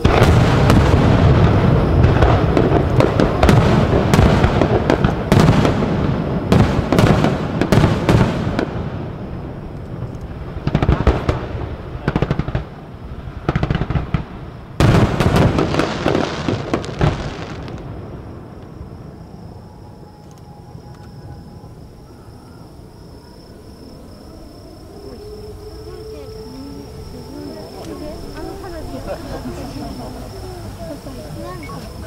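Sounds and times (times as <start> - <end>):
fireworks booming and cracking: 0.0 - 19.5.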